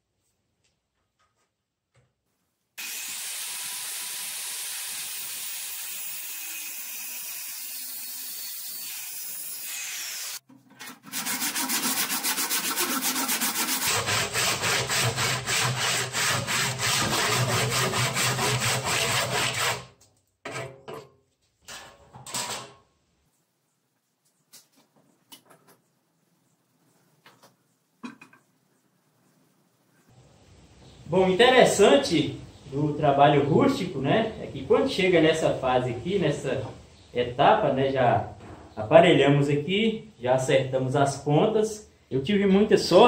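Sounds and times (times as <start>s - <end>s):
handheld power tool running: 2.8s - 10.4s
handsaw cutting log: 2.8s - 19.9s.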